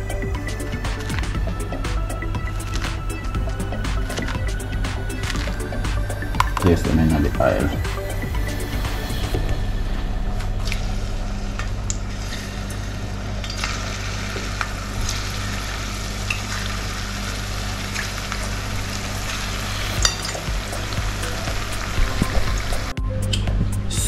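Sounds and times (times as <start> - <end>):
oil popping and crackling: 0.1 - 7.3, 10.5 - 23.4
plantain frying in oil: 12.0 - 22.9.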